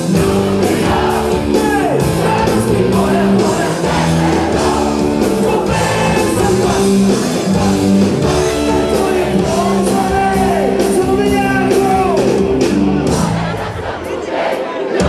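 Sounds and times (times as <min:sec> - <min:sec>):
person singing: 0:00.0 - 0:12.5
drums: 0:00.0 - 0:15.0
held keyboard chords: 0:00.0 - 0:15.0
live rock band: 0:00.0 - 0:15.0.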